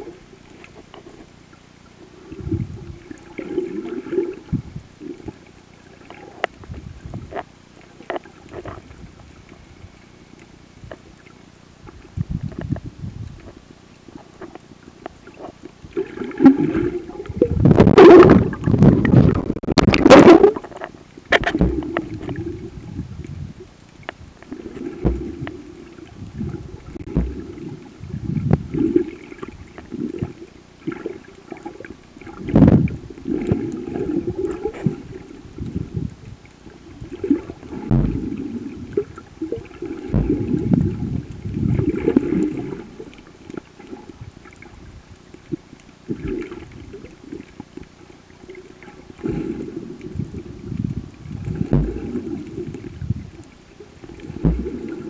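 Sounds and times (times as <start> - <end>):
muffled underwater gurgling: 0.0 - 55.0.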